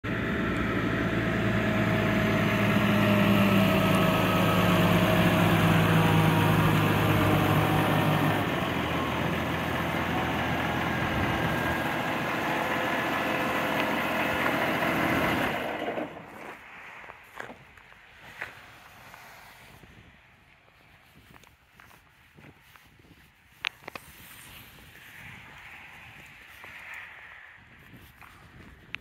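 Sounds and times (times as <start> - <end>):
tractor engine idling: 0.0 - 17.5.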